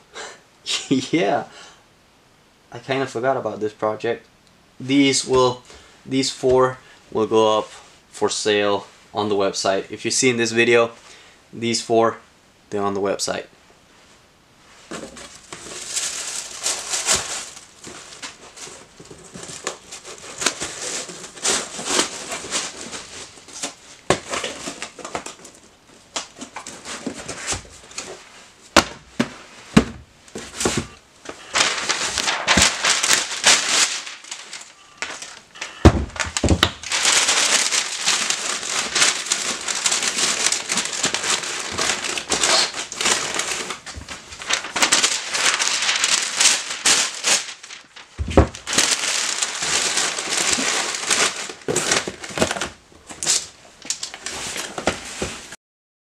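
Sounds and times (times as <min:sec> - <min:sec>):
paper crinkling and rustling: 0:14.9 - 0:55.6
dull thumps of cardboard box: 0:28.8 - 0:30.9, 0:35.8 - 0:36.7, 0:48.2 - 0:48.6.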